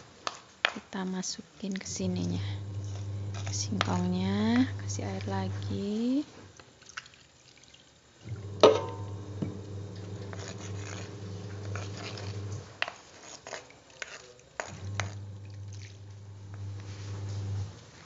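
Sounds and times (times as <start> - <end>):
spice paste scraping: 1.8 - 6.4, 9.1 - 18.0
steady low hum: 1.8 - 6.5, 8.2 - 12.7, 14.7 - 17.8.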